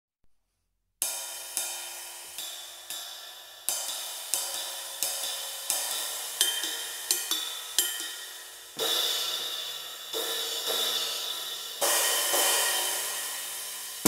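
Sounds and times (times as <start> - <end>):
riveted cymbal struck with drumstick: 1.0 - 14.0.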